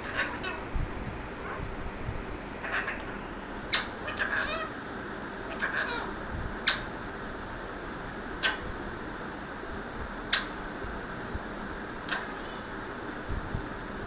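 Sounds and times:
parakeets chirping: 0:00.0 - 0:04.8, 0:05.4 - 0:06.9.

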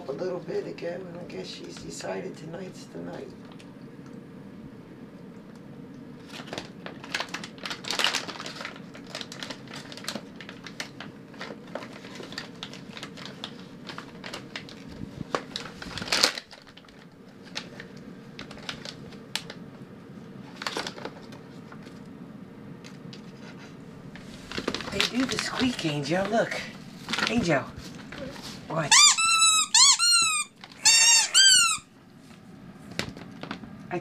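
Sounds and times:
plastic packaging crinkling: 0:06.2 - 0:19.6, 0:20.4 - 0:22.0, 0:24.1 - 0:31.8.

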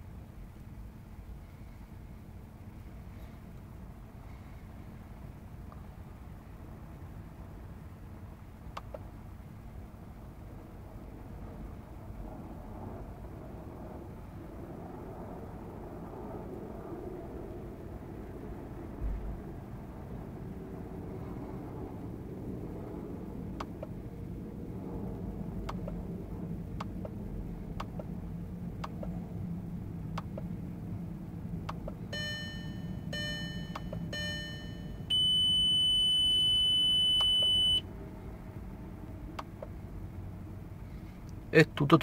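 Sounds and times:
steady low hum: 0:00.0 - 0:42.0
buzzer beeps: 0:32.2 - 0:37.8.

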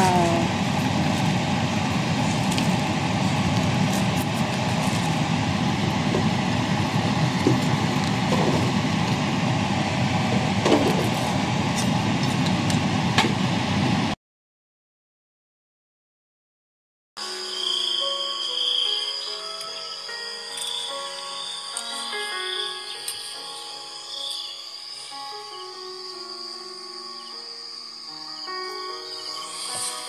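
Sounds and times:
steady rushing hum: 0:00.0 - 0:14.2.

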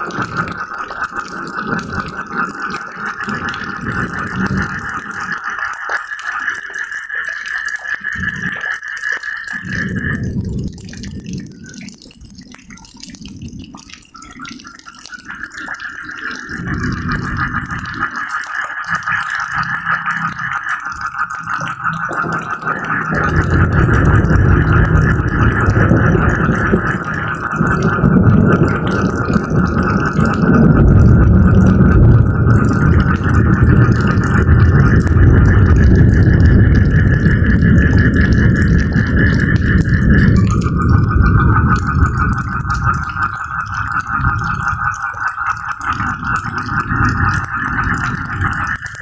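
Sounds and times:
rain dripping and pattering: 0:00.0 - 0:49.0
rattling frog chorus: 0:00.0 - 0:49.0
low rumble: 0:22.1 - 0:45.0.

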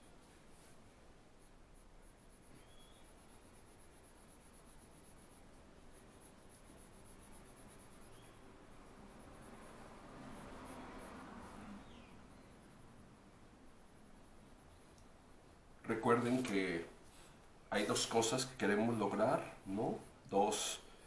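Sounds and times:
pencil scratching on paper: 0:00.1 - 0:12.8.

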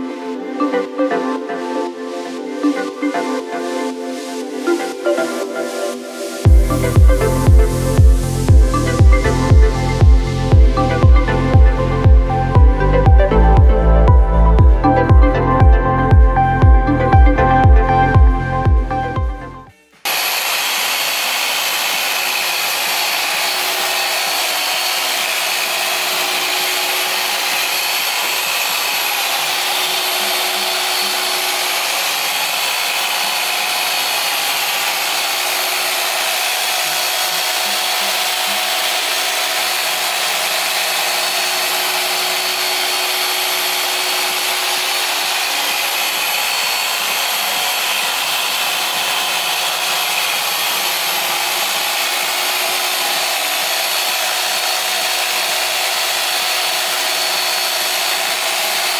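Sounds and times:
music: 0:00.0 - 0:20.1
machine polisher humming: 0:00.0 - 0:58.9.

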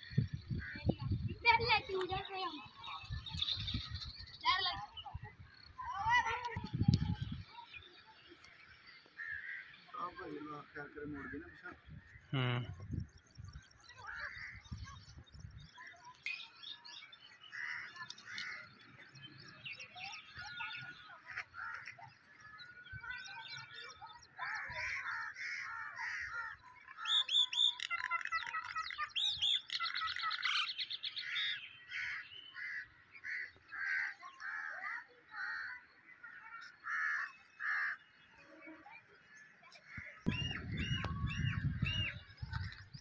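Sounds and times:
birds chirping and calling: 0:00.0 - 0:43.0
fast bird trill: 0:26.8 - 0:32.3.

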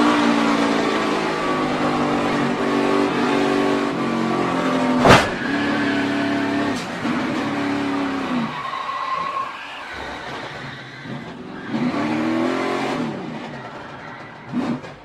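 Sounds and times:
race car engine at speed: 0:00.0 - 0:15.0
sharp bang of car contact: 0:05.0 - 0:05.4.

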